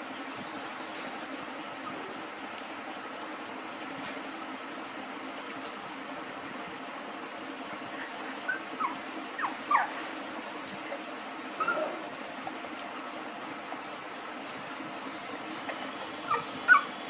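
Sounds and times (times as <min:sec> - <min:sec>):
steady background hum: 0:00.0 - 0:17.0
puppies whimpering: 0:07.8 - 0:10.2, 0:15.9 - 0:17.0.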